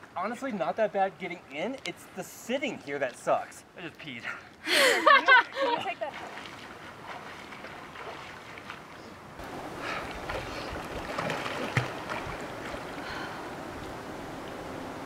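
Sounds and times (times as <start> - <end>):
water splashing from swimming: 5.4 - 13.4.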